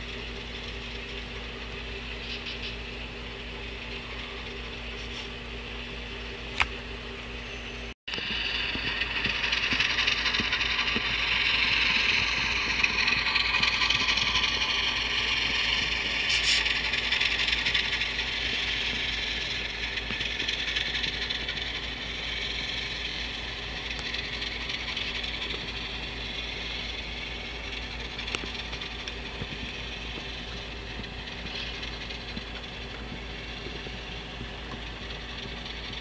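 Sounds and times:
model train motor hum: 8.1s - 36.0s
model train wheels rattling on rails: 8.2s - 36.0s.

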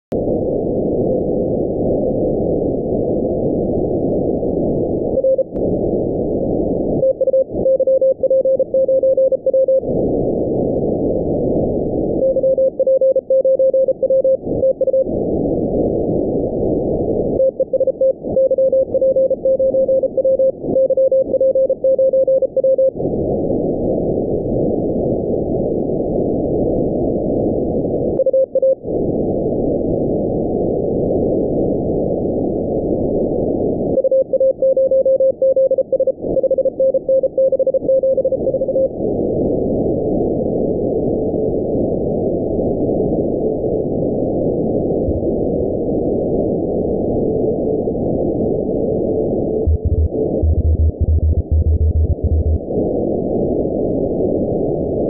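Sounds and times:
morse code beeps: 5.2s - 5.6s, 7.0s - 9.8s, 12.2s - 15.1s, 17.4s - 23.0s, 28.2s - 28.8s, 34.0s - 38.9s, 49.6s - 52.6s.

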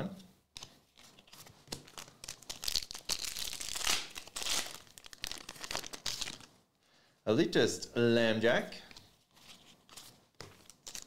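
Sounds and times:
foil wrapper tearing and crinkling: 1.8s - 6.5s, 10.6s - 11.0s.

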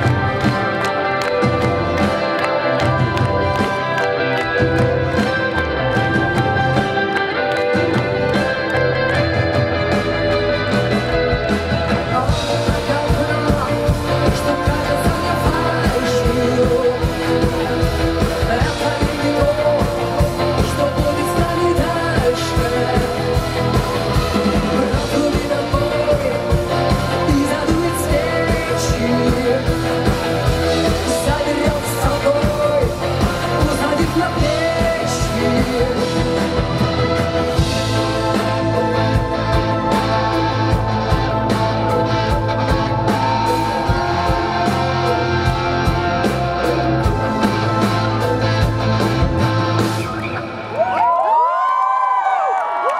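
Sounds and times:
keyboards: 0.0s - 51.3s
bass guitar: 0.0s - 51.4s
drums: 0.0s - 52.9s
electric guitar: 0.0s - 52.9s
lead vocal singing: 11.1s - 50.1s.

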